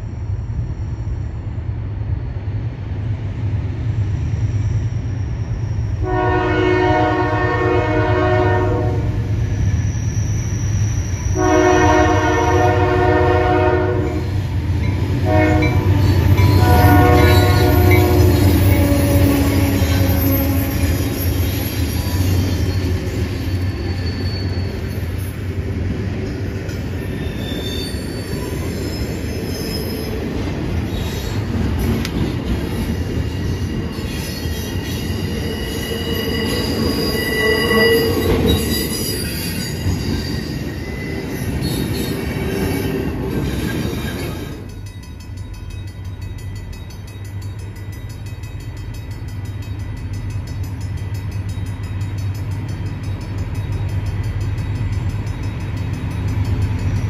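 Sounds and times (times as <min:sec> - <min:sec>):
passing train rumble: 0:00.0 - 0:57.0
locomotive air horn: 0:06.0 - 0:09.3, 0:11.4 - 0:14.4, 0:15.2 - 0:16.0, 0:16.6 - 0:21.0.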